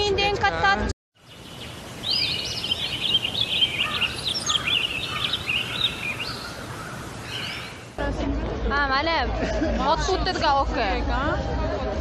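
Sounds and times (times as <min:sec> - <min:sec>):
small birds chirping: 0:01.2 - 0:08.0
steady background hiss: 0:01.2 - 0:08.0.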